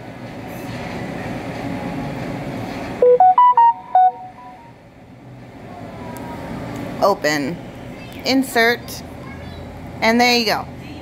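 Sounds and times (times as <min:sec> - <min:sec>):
phone notification beeps: 0:03.0 - 0:04.7.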